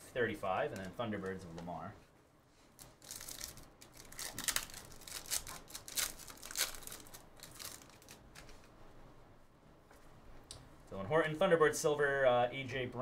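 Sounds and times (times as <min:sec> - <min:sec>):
foil wrapper tearing and crinkling: 0:02.8 - 0:08.6.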